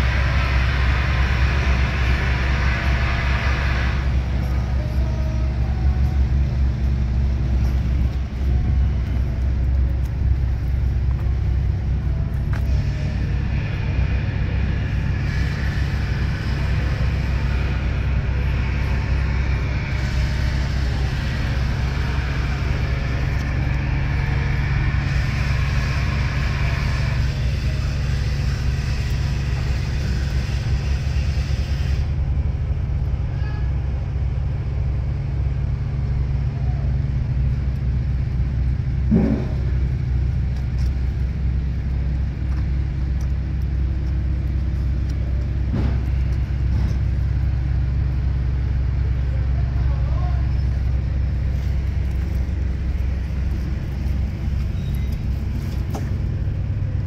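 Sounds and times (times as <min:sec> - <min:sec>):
hiss: 0:00.0 - 0:06.1, 0:12.3 - 0:32.2
diesel truck engine idling: 0:00.0 - 0:57.0.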